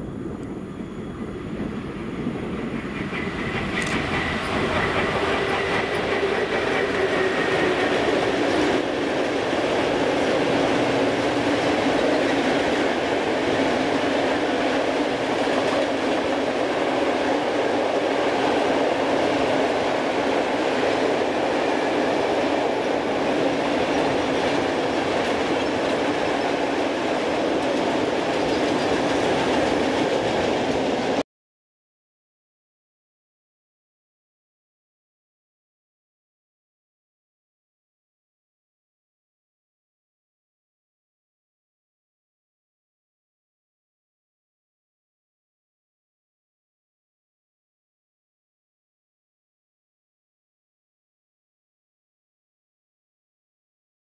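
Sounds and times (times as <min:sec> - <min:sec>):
freight train wheels rumbling on rails: 0:00.0 - 0:31.2.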